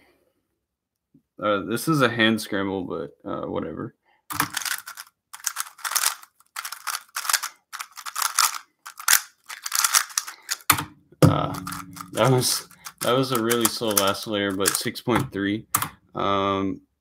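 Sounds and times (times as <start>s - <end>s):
puzzle cube layers clicking: 4.3s - 10.8s, 11.5s - 16.0s.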